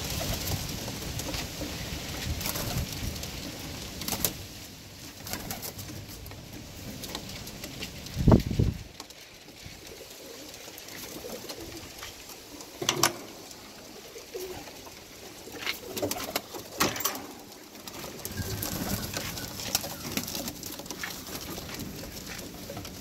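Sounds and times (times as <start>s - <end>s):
pigeons cooing: 9.5s - 23.0s
sharp clatters and knocks: 10.6s - 13.7s, 15.5s - 23.0s.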